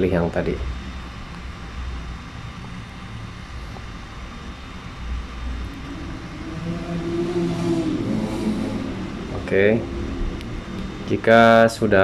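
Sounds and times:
low uneven rumbling: 1.0s - 12.0s.

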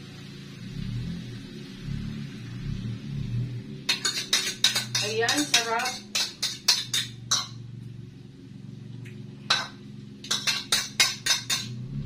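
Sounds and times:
metal utensil clinking bowl: 3.9s - 7.6s, 9.5s - 11.8s.

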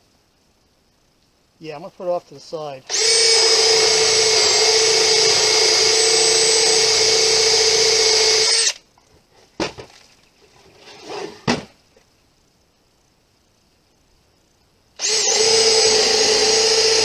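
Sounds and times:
cordless drill boring through wood: 2.9s - 8.8s, 15.0s - 17.0s.

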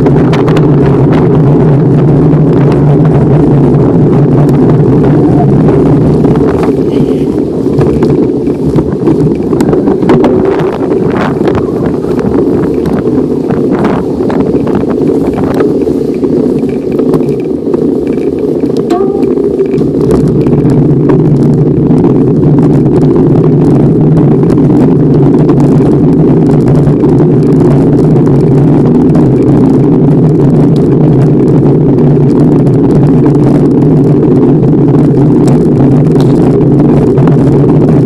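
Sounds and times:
bike clicks and knocks on rough ground: 0.0s - 4.9s, 5.8s - 38.0s
wind buffeting microphone: 0.0s - 38.0s.

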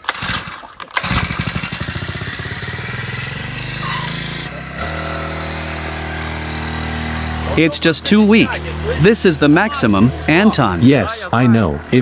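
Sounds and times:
small petrol engine revving: 0.0s - 12.0s.

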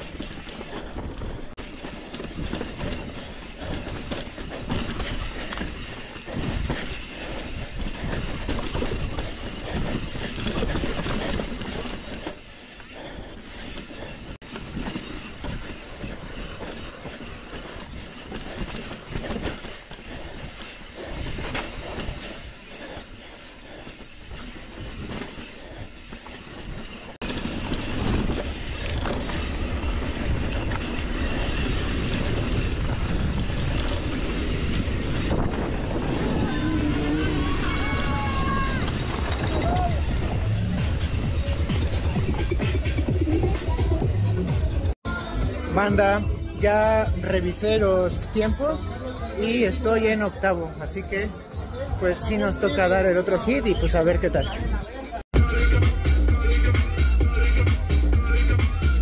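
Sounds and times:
low rumble of tyres: 0.0s - 45.4s
mountain bike rattling: 0.0s - 59.0s
rush of riding: 0.0s - 59.0s.

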